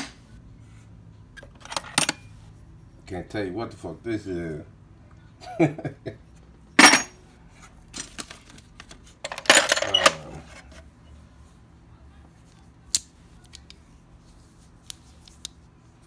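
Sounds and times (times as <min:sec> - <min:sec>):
metal tools clattering: 0:06.8 - 0:07.2, 0:09.2 - 0:10.8.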